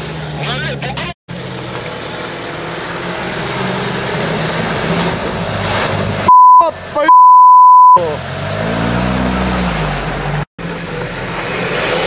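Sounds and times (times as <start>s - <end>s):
vehicle engine under load: 0.0s - 12.0s
voice: 0.4s - 1.2s, 6.6s - 7.2s, 7.9s - 8.2s
water rushing and splashing: 1.4s - 7.0s
censor bleeps: 6.3s - 8.0s.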